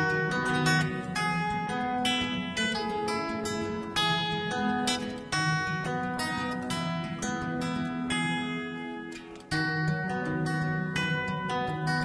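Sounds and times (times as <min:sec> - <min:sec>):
acoustic guitar picking melody: 0:00.0 - 0:12.0.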